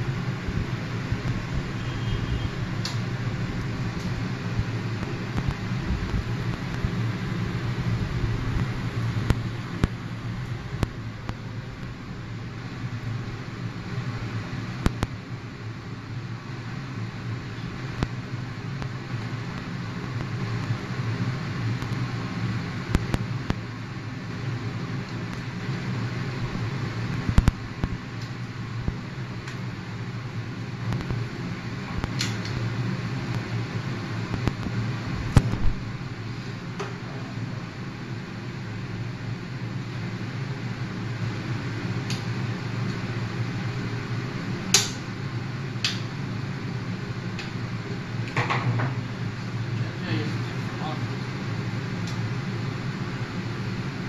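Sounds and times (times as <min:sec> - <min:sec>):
fan whirring: 0:00.0 - 0:54.0
low hum: 0:00.0 - 0:54.0.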